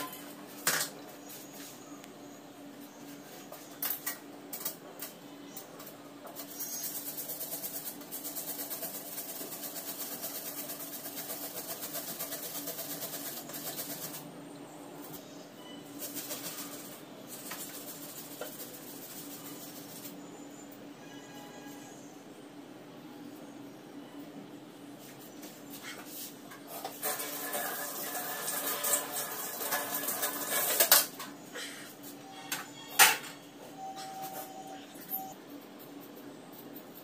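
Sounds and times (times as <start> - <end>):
onion rasping on metal grater: 6.4 - 14.2, 26.7 - 30.9.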